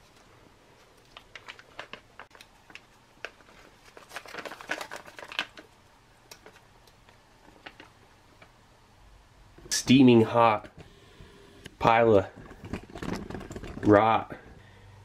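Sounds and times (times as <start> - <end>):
plastic pouch crinkling: 0.8 - 8.0.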